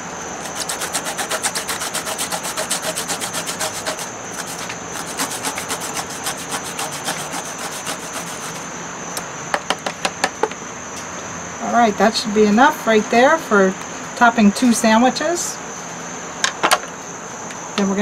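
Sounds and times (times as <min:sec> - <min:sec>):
cucumber rasping on zester: 0:00.4 - 0:08.7.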